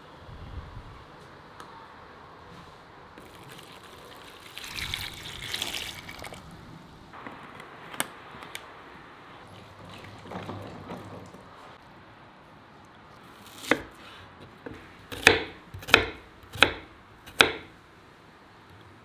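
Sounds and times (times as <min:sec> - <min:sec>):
water splashing into a basin: 0:03.2 - 0:06.5.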